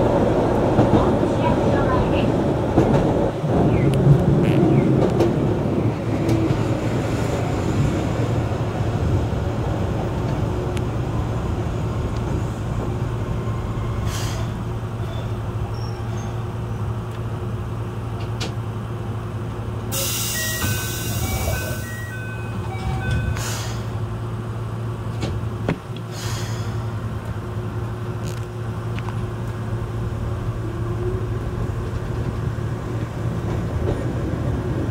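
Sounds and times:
tram rumbling on rails: 0:00.0 - 0:34.9.

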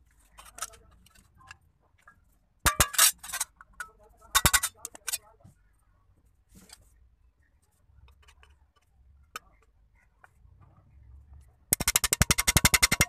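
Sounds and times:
awl clicking and scratching metal: 0:00.0 - 0:05.4, 0:06.5 - 0:13.0
rapid sharp clicks: 0:11.7 - 0:13.0.

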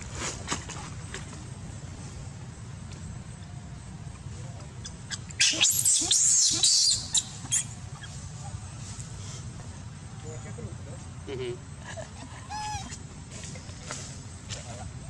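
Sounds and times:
monkey screaming: 0:05.1 - 0:08.6, 0:12.3 - 0:13.0.

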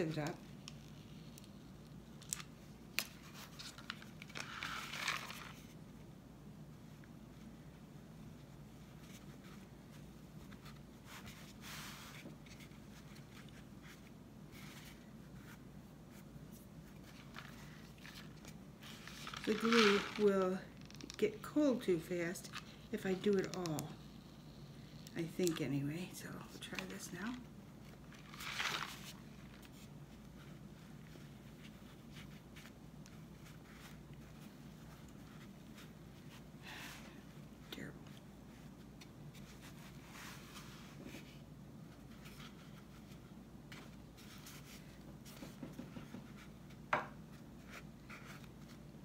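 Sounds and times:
low steady hum: 0:00.0 - 0:49.0
scrape: 0:11.0 - 0:12.8, 0:39.4 - 0:41.4.

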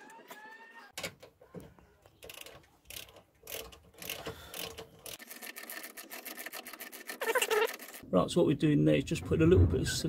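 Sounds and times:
hand ratchet clicking: 0:02.2 - 0:08.0.

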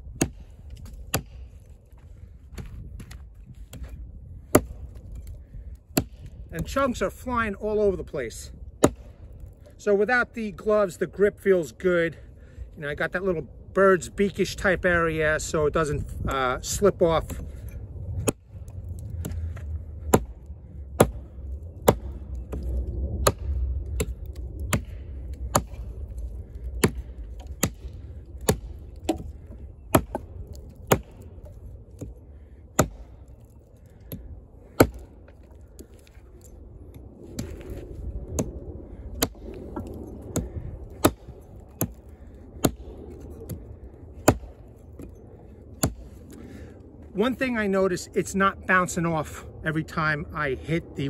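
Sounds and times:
axe chopping into log: 0:00.2 - 0:01.4, 0:04.5 - 0:04.8, 0:06.0 - 0:06.3, 0:08.8 - 0:09.1, 0:20.1 - 0:20.3, 0:21.0 - 0:22.6, 0:25.5 - 0:25.8, 0:26.8 - 0:29.3, 0:29.9 - 0:31.2, 0:32.8 - 0:33.1, 0:34.8 - 0:35.1, 0:40.4 - 0:42.0, 0:44.2 - 0:44.6, 0:45.8 - 0:46.0.

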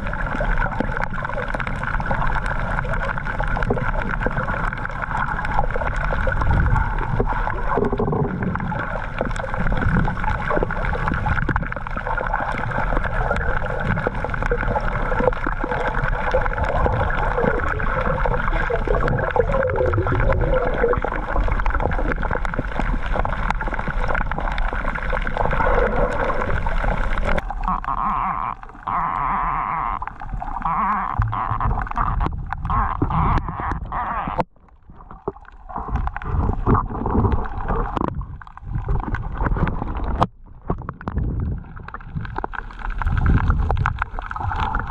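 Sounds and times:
muffled underwater noise: 0:00.0 - 0:44.9.

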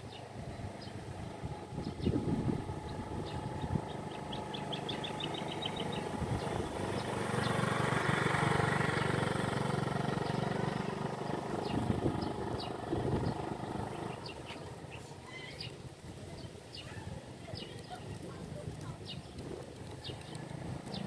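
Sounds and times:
bird chirping: 0:00.0 - 0:07.8, 0:11.4 - 0:18.2
scooter engine passing by: 0:00.0 - 0:21.0.

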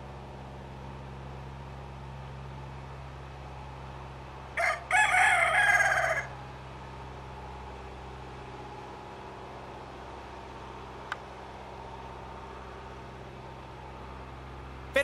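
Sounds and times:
steady low hum: 0:00.0 - 0:15.0
rooster crowing: 0:04.6 - 0:06.4.

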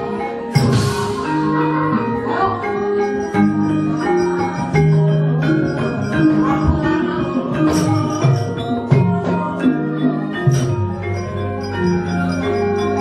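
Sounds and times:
gamelan metallophones and gongs: 0:00.0 - 0:13.0.

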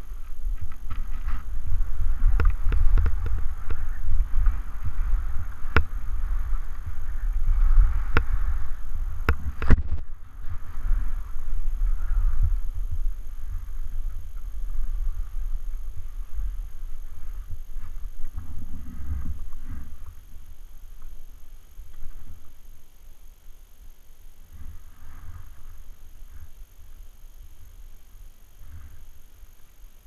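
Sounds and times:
ski edges scraping snow: 0:00.0 - 0:20.2
wind buffeting microphone: 0:00.0 - 0:22.6.

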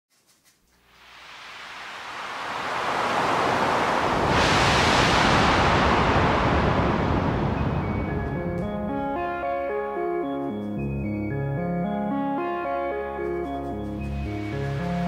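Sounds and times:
ocean surf wave wash: 0:00.8 - 0:09.6.

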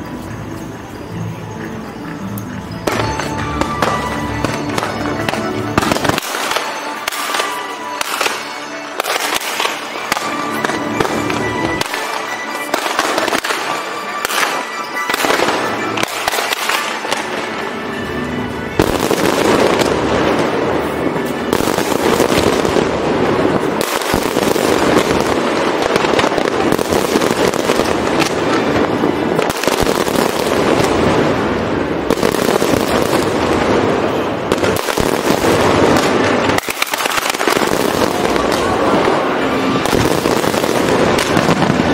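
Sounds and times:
background music: 0:00.0 - 0:41.9
fireworks bursting: 0:02.0 - 0:41.9.

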